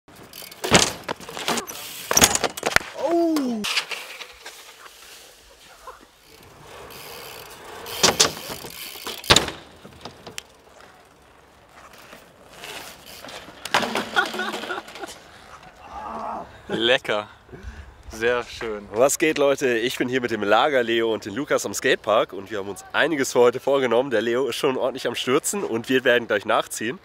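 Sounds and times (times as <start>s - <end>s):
bikes clattering impacts: 0.1s - 15.9s
short falling cry: 15.8s - 16.6s.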